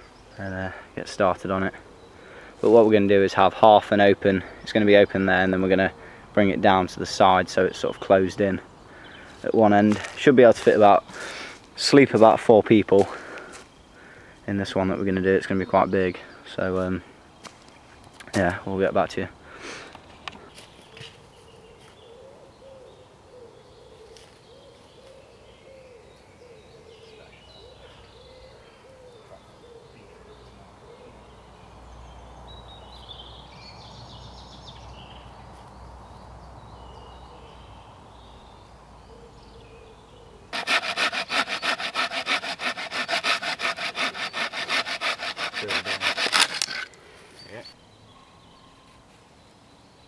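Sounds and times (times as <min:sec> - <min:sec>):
hand saw cutting wood: 0:40.6 - 0:46.9.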